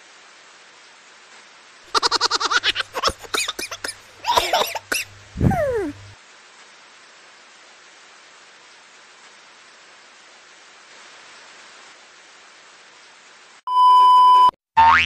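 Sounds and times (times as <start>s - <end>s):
steady hiss: 0.0s - 13.6s
cartoon squeaky chuckles: 1.9s - 6.1s.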